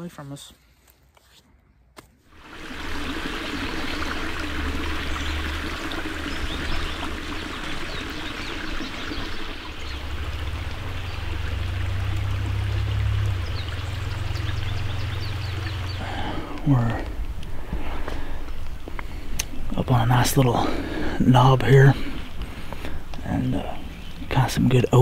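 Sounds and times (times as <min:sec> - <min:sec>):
creek water trickling: 0:02.3 - 0:25.0
low rumble: 0:02.6 - 0:18.8.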